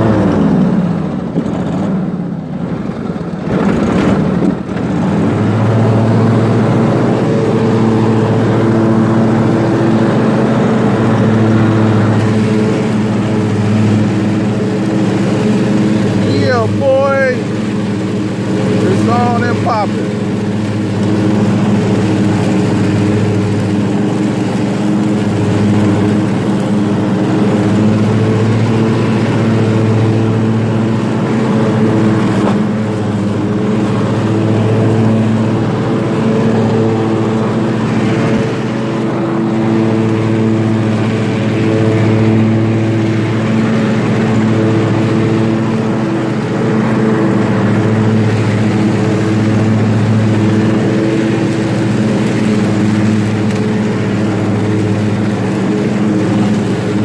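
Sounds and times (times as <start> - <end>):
lawn mower engine drone: 0.0 - 57.0.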